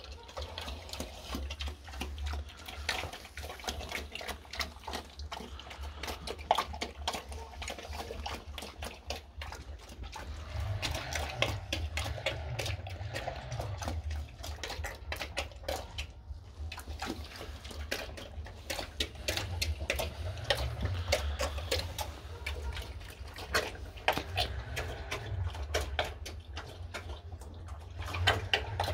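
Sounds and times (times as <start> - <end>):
pig eating wet slop: 0.0 - 28.9.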